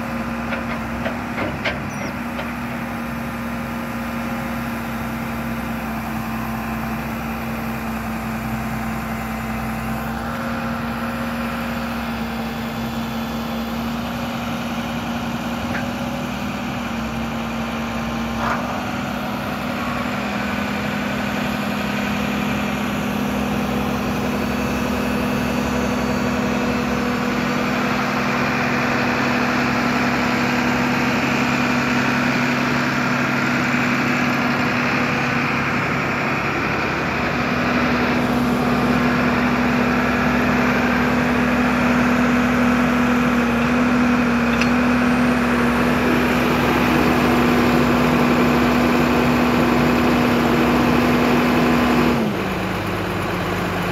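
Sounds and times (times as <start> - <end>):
tractor diesel engine idling: 0.0 - 53.9.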